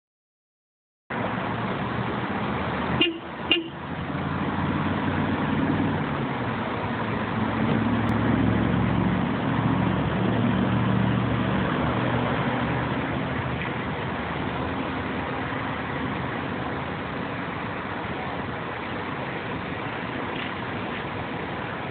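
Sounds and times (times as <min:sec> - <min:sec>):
car engine and traffic hum: 0:01.1 - 0:21.9
car horn toots: 0:03.0 - 0:03.8.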